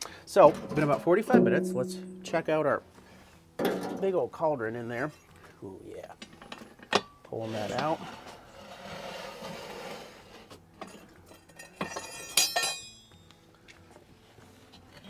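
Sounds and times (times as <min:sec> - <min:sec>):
metal scraping: 0:00.4 - 0:04.0, 0:06.2 - 0:12.2.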